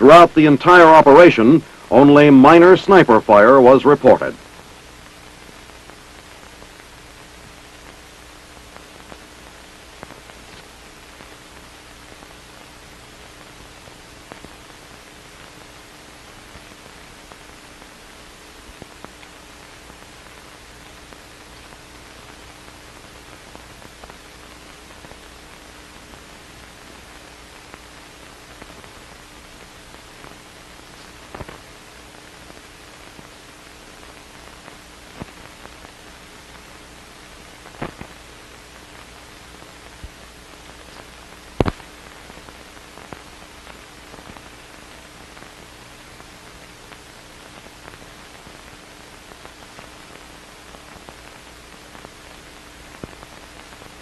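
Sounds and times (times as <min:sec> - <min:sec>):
faint steady hum: 0:00.0 - 0:54.0
film soundtrack hiss: 0:00.0 - 0:54.0
clicks and pops: 0:37.7 - 0:38.2, 0:40.9 - 0:41.9.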